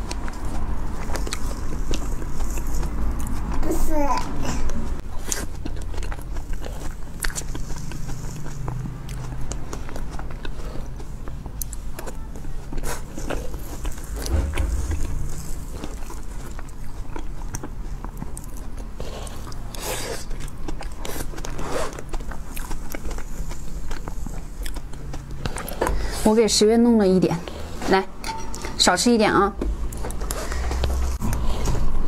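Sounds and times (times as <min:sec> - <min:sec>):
steady low hum: 0:13.5 - 0:17.6.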